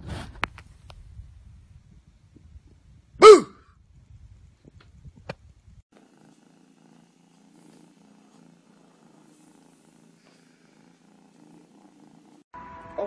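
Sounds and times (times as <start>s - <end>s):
kitten purring: 5.0s - 12.5s.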